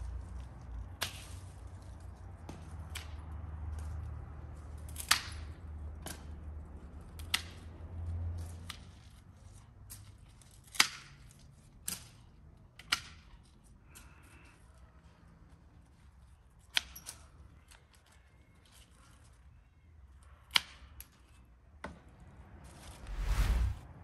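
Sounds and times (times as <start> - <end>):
low rumble: 23.0 - 24.0.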